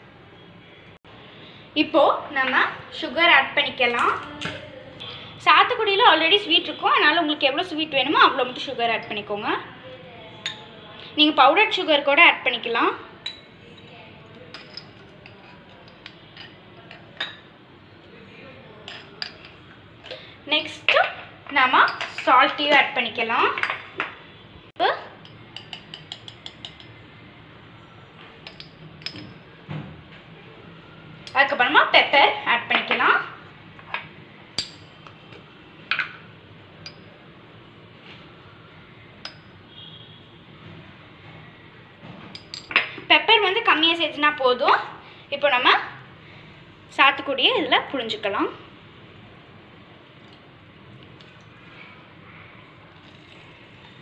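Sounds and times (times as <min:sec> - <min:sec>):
kitchen utensils clicking: 0:03.8 - 0:04.7
spoon clinking against glasses: 0:10.4 - 0:10.7, 0:13.2 - 0:17.5, 0:25.2 - 0:27.0, 0:28.4 - 0:29.4, 0:36.8 - 0:37.2, 0:39.2 - 0:39.6, 0:42.4 - 0:43.0.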